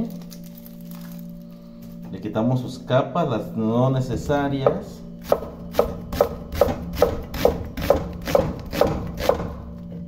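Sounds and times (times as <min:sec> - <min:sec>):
knife chopping onion on wood: 0:04.6 - 0:09.8.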